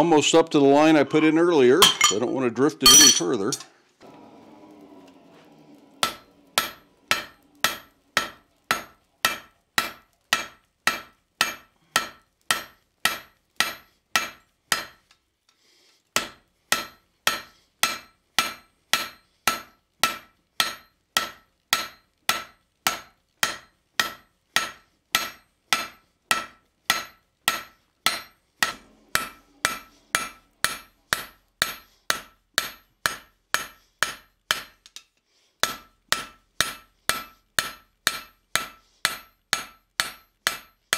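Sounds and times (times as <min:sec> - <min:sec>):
hammer ringing on anvil: 0:02.9 - 0:03.6, 0:06.0 - 0:14.9, 0:16.2 - 0:34.7.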